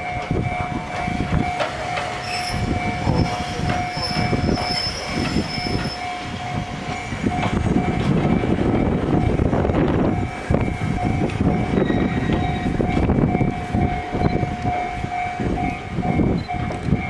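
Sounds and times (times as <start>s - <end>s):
train clattering on rail joints: 0.0s - 17.0s
train wheels squealing: 1.4s - 7.8s, 11.6s - 12.9s.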